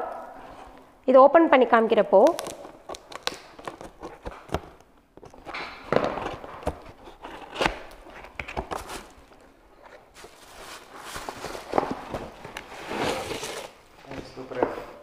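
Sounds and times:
packaging knocks and clicks: 0:02.3 - 0:09.4
packaging rustling: 0:02.3 - 0:14.0.

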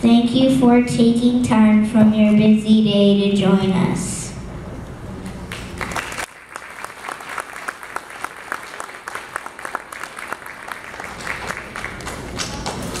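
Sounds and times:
audience applauding: 0:05.5 - 0:13.0.

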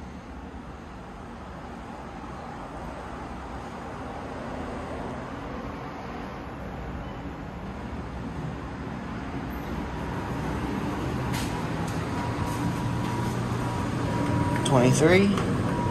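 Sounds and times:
elevator doors sliding open: 0:09.6 - 0:15.9.

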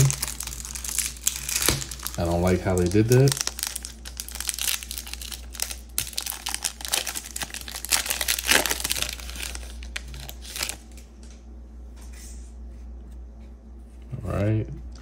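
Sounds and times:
foil wrapper crinkling and tearing: 0:00.0 - 0:11.1.

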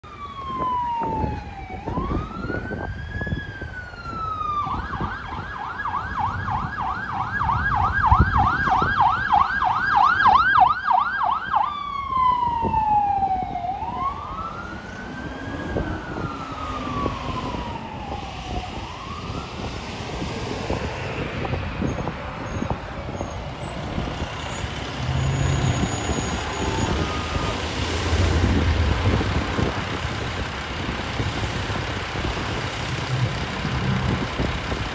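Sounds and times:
ambulance siren wailing and yelping: 0:00.0 - 0:34.9
traffic noise: 0:00.0 - 0:34.9
truck engine idling: 0:26.5 - 0:34.9.

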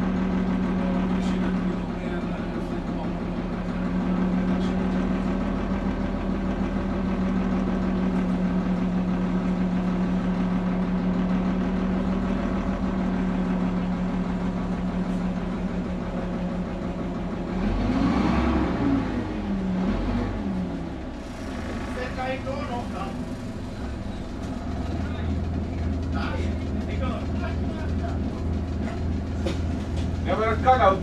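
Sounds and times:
bus diesel engine running: 0:00.0 - 0:31.0.

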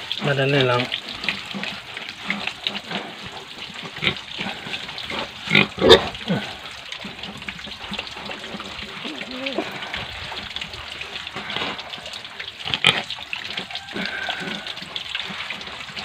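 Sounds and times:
pig grunting: 0:02.8 - 0:06.8, 0:08.3 - 0:10.6
hand scrubbing soapy lather: 0:08.3 - 0:10.0.

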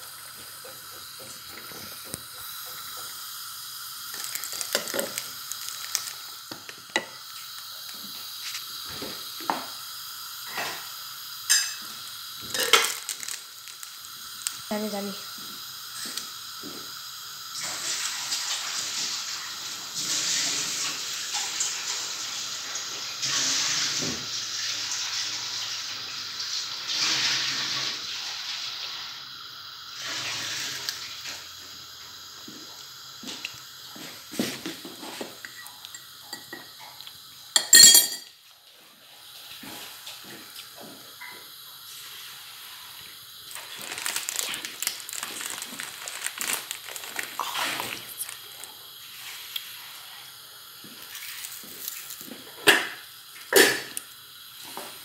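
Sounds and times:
food bubbling and sizzling in pot: 0:00.0 - 0:55.0
sharp clink: 0:37.6 - 0:38.3.

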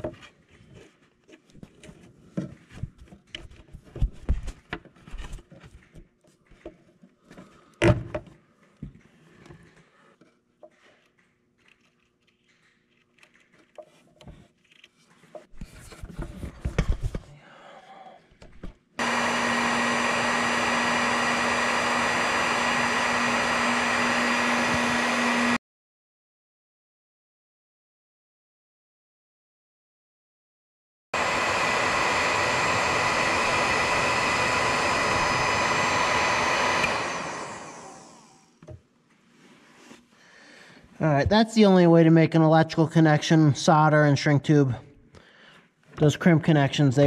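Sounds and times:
heat gun blowing: 0:19.0 - 0:25.6, 0:31.2 - 0:38.6.

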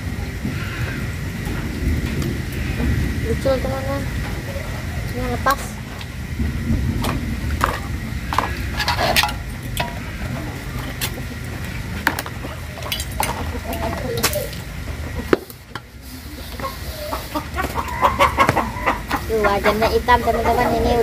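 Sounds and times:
water splashing: 0:00.0 - 0:21.0
dishes clinking and knocking: 0:07.0 - 0:10.2.

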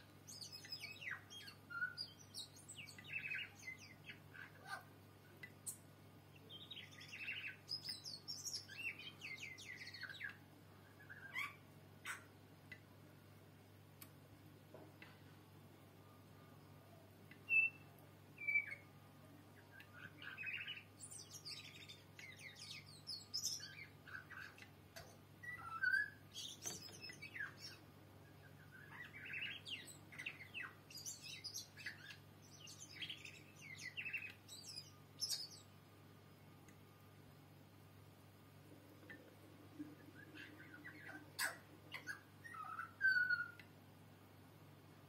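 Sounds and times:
bird singing whistles and clicks: 0:17.3 - 0:17.8, 0:19.7 - 0:27.8, 0:28.8 - 0:35.6, 0:40.2 - 0:43.7.

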